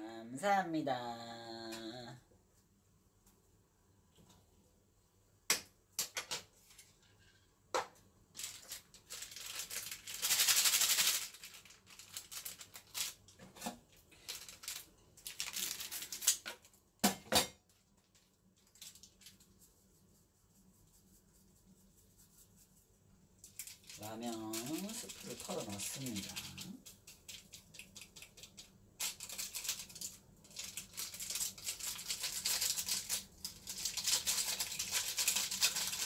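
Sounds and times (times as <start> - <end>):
plastic packet crinkling: 8.3 - 16.7, 18.0 - 19.6, 23.4 - 36.0
plastic packet tearing: 8.4 - 13.4, 14.1 - 16.7, 23.5 - 36.0.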